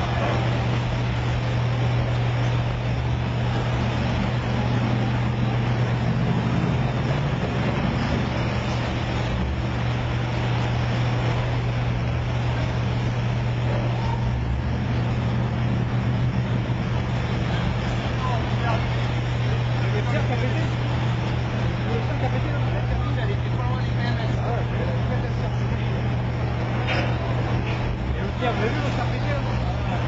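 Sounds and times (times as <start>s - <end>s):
churning water rushing: 0.0s - 30.0s
diesel engines droning: 0.0s - 30.0s.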